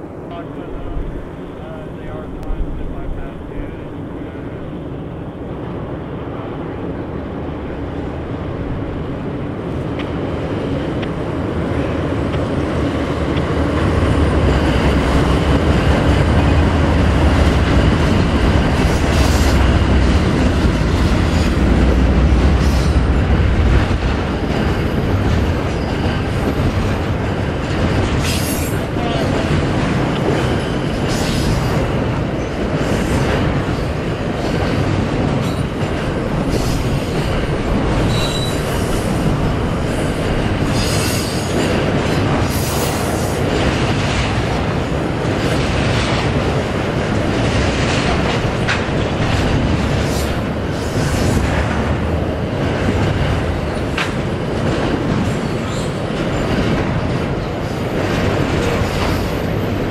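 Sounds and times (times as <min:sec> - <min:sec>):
diesel locomotive engine rumble: 0:00.0 - 0:59.9
rolling rumble of train cars: 0:00.0 - 0:59.9
train wheel clacks: 0:12.1 - 0:59.9.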